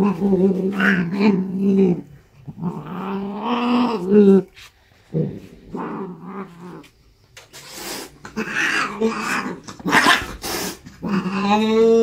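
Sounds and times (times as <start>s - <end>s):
cat growling and hissing: 0.0s - 12.0s.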